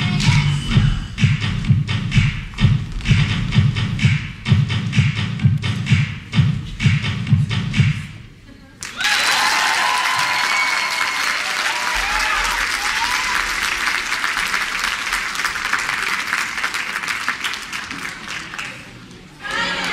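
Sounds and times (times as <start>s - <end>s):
audience applauding: 8.8s - 19.9s
cheers and whoops: 8.9s - 13.8s.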